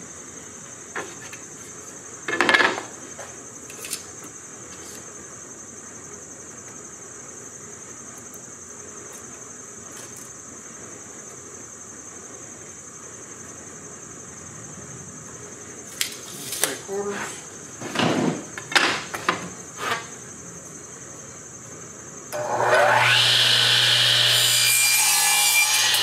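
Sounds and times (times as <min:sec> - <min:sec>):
insects chirring: 0:00.0 - 0:26.0.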